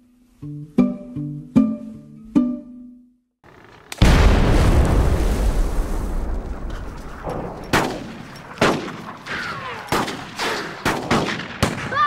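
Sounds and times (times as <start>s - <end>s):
low rumble: 4.0s - 8.5s
gunshots with echoing tail: 4.0s - 11.9s.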